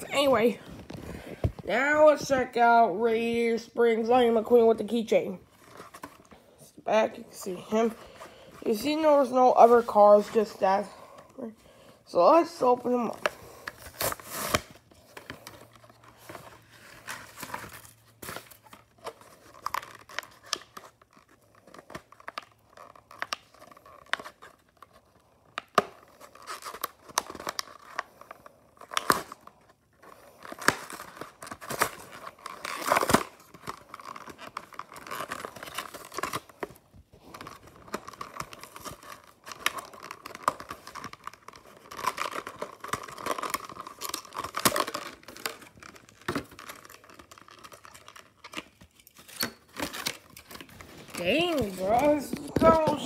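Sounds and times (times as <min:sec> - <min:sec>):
plastic crinkling and crackling: 0:00.0 - 0:03.4, 0:12.4 - 0:53.0
cardboard tearing: 0:13.3 - 0:53.0.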